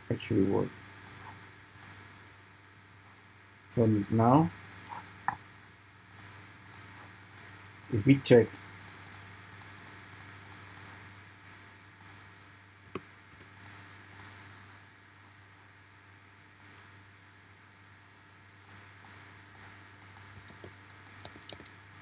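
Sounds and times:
faint low hum: 0.0 - 22.0
computer mouse clicking: 1.0 - 2.0, 4.0 - 5.0, 6.1 - 12.2, 12.8 - 14.3, 16.6 - 16.8, 18.6 - 22.0.

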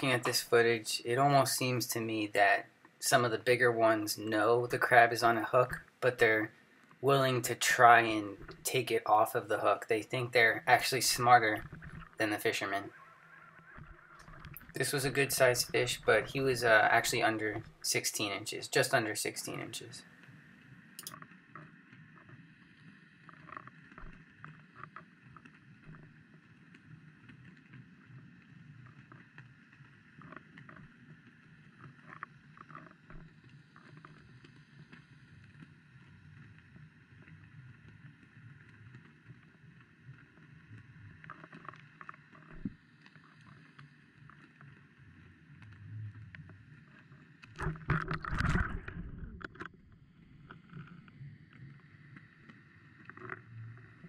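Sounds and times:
muffled underwater wash: 0.0 - 54.0
faint clicks: 20.2 - 54.0
rumbling disturbance: 47.6 - 49.9.

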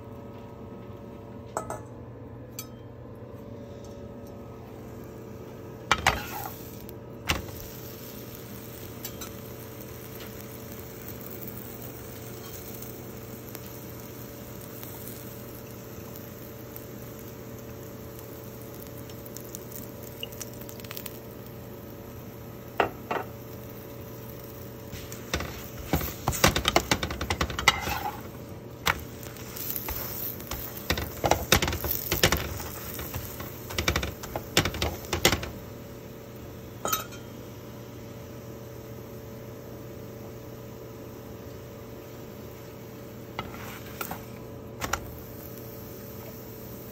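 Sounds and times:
steady low hum: 0.0 - 46.9
metal spatula scraping pan: 5.9 - 6.5, 27.3 - 28.3.

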